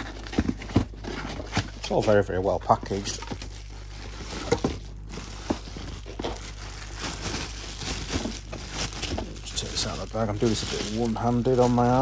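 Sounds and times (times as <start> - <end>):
plastic packaging crinkling: 0.0 - 12.0
sharp crackles: 6.0 - 12.0.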